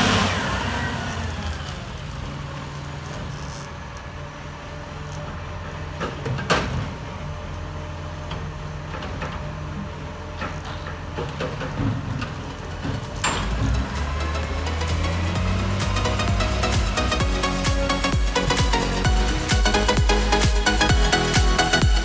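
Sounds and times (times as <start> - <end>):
truck engine idling: 7.1 - 22.0
sharp metallic clank: 13.2 - 14.2.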